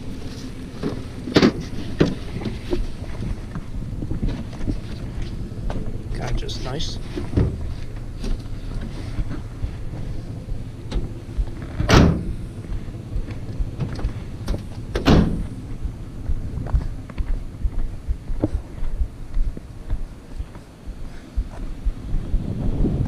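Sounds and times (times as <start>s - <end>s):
van doors slamming: 7.0s - 15.9s
knocks and handling noise: 7.0s - 22.3s.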